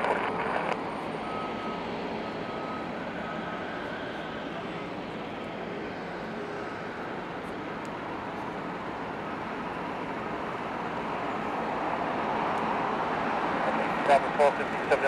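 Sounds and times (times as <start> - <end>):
jet engine rushing: 0.0 - 8.3.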